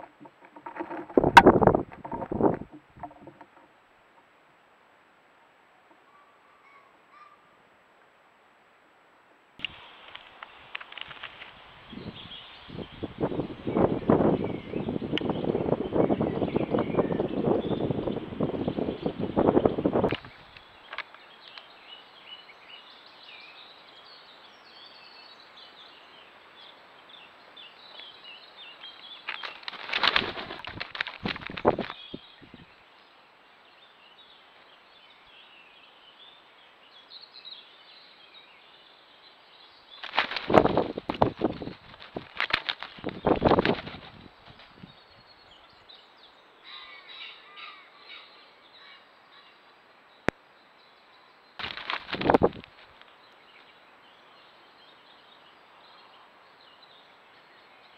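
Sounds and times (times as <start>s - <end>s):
faint outdoor hiss: 0.0s - 57.9s
songbirds chirping: 0.0s - 57.9s
bird calling: 5.9s - 7.6s, 46.6s - 49.6s
bird wings flapping: 29.2s - 32.0s, 40.0s - 44.9s, 51.6s - 52.9s.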